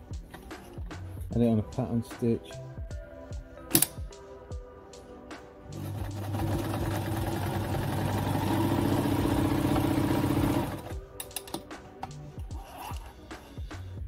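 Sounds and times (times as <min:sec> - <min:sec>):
sewing machine stitching: 0:05.8 - 0:10.9.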